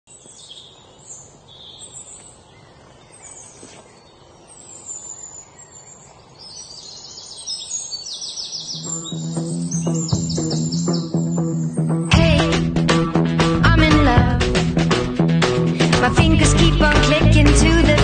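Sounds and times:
steady background hiss: 0.1 - 9.9
birds chirping and trilling: 0.1 - 12.8.

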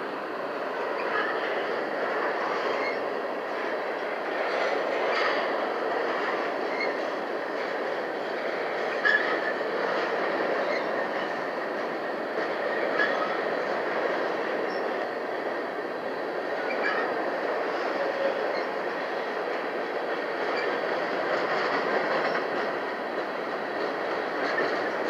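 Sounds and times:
train wheels rumbling on track: 0.0 - 25.0
high wheel squeaks: 8.9 - 9.5.

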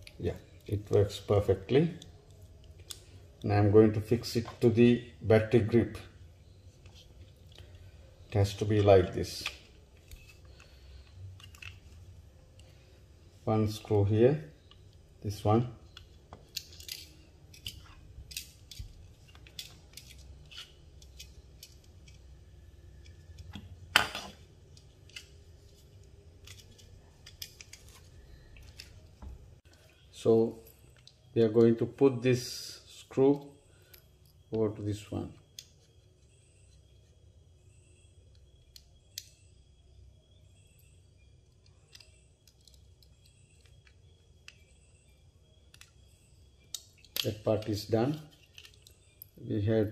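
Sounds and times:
faint low hum: 0.0 - 49.9
plastic parts clicking: 8.7 - 12.7, 15.8 - 22.3, 41.5 - 44.8, 46.6 - 49.3.

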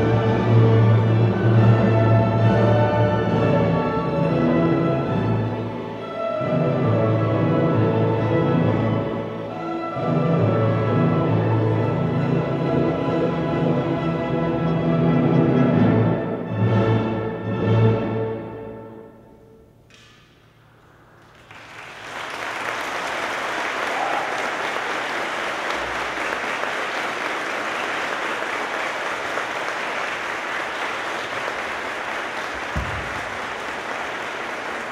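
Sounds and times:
audience applause: 21.1 - 34.9
orchestra closing chords: 24.3 - 34.9.

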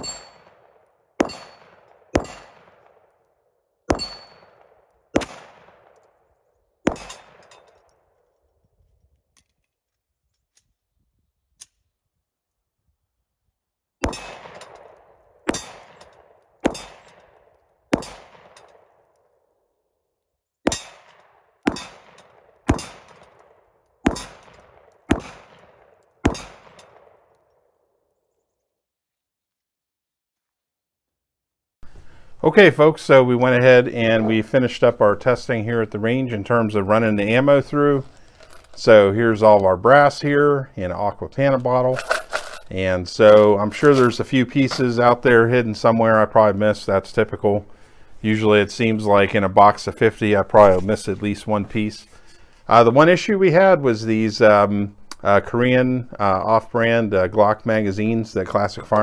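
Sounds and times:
steel targets ringing: 0.0 - 0.6, 1.2 - 2.6, 3.9 - 4.6, 15.5 - 17.1
pistol shots: 0.0 - 8.2, 14.0 - 19.4, 20.6 - 28.0.

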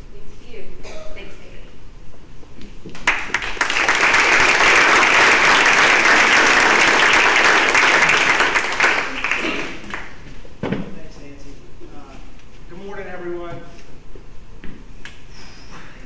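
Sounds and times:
audience applauding: 3.0 - 10.2.

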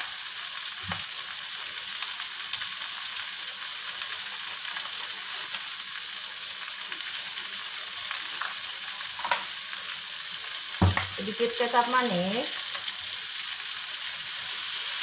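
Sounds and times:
hot oil sizzling in a wok: 0.0 - 15.0.

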